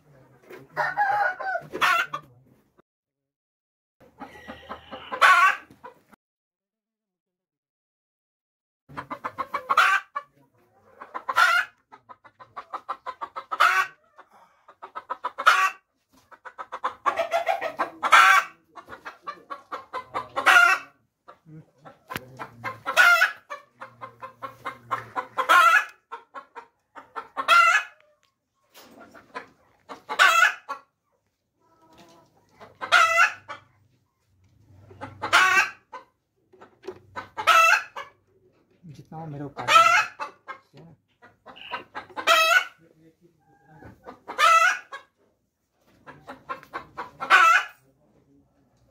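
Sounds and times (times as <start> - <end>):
hen cackling: 4.1 - 6.0, 8.9 - 28.2, 29.2 - 30.9, 32.6 - 33.7, 34.8 - 38.3, 39.5 - 40.6, 41.2 - 42.8, 43.7 - 45.1.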